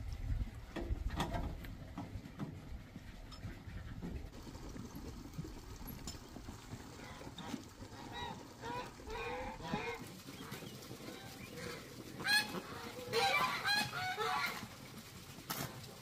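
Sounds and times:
poultry honking calls: 8.0 - 14.7.

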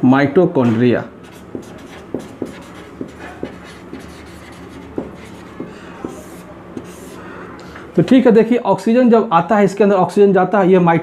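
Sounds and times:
marker pen writing on whiteboard: 1.2 - 7.2.

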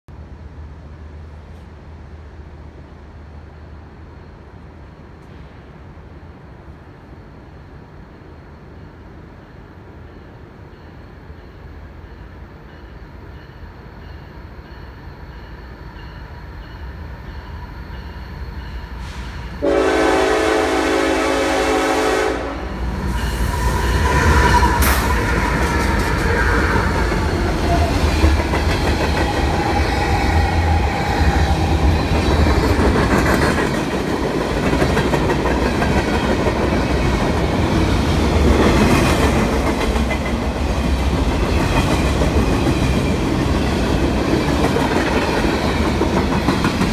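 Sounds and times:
freight train rumble: 0.1 - 46.9
freight cars rolling past: 16.3 - 46.9
train horn blast: 19.0 - 23.3.

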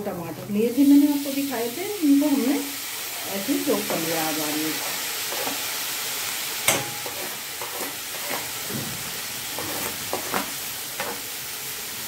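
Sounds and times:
vegetables sizzling in oil: 0.0 - 12.0
utensil scraping and knocking pan: 4.8 - 5.6, 6.7 - 11.3.

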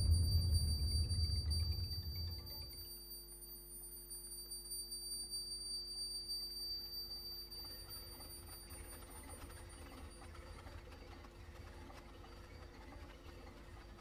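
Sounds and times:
faint low rumble: 0.0 - 4.2
high electronic tone: 0.0 - 10.1
low held tones: 0.0 - 10.5.

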